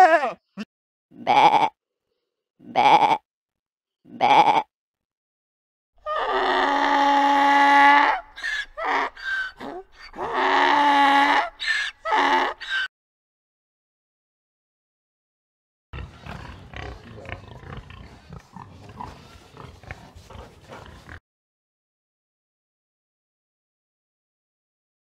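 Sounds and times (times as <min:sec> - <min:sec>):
donkey braying: 0:06.0 - 0:12.9.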